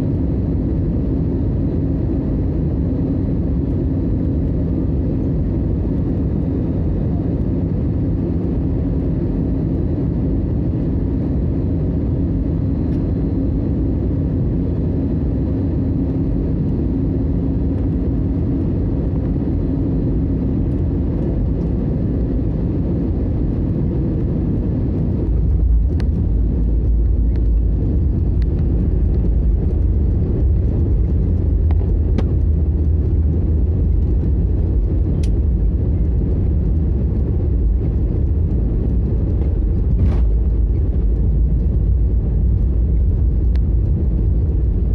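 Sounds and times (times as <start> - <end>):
jet airliner cabin noise: 0.0 - 44.9
landing gear rumbling on runway: 23.7 - 44.9.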